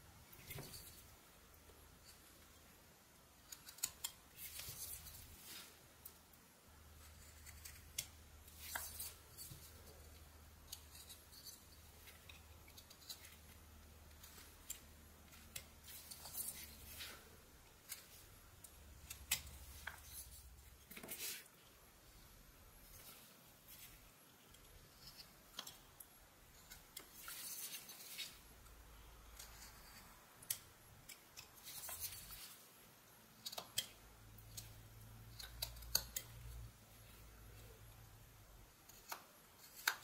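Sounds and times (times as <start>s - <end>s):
knife shaving wood: 3.5s - 5.8s, 6.9s - 10.1s, 29.3s - 32.7s, 38.8s - 40.0s.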